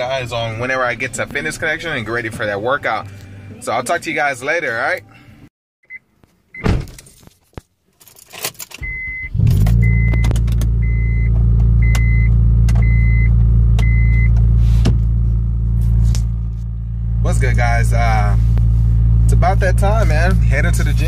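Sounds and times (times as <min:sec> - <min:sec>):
keys jangling: 0:07.9 - 0:08.8
car engine starting and idling: 0:08.2 - 0:21.0
car warning chime beeping: 0:08.8 - 0:14.4.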